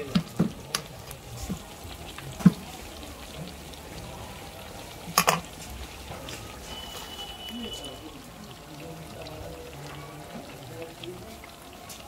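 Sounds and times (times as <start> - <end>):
oil sizzling: 0.0 - 12.0.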